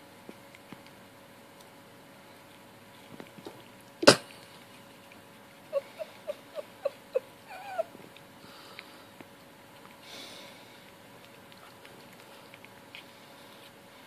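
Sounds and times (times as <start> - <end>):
cat chirping: 5.6 - 8.0
cat mewing: 5.7 - 8.0.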